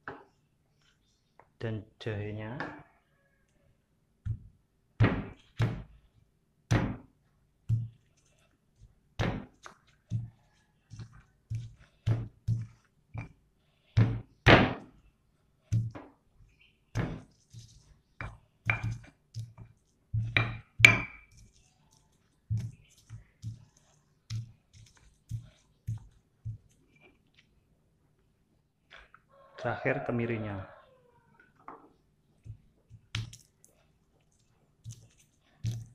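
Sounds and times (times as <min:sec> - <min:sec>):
stone pestle pounding in mortar: 0:18.2 - 0:19.6, 0:20.2 - 0:21.3.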